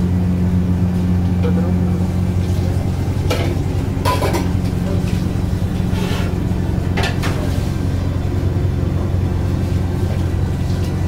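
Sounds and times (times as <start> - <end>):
low mechanical hum: 0.0 - 11.0
metal utensils clattering: 3.3 - 4.6.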